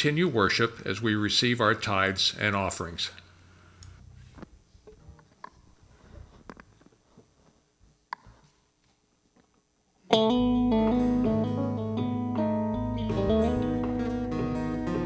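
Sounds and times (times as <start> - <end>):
picked guitar notes: 10.1 - 15.0
steady bass line: 10.2 - 15.0.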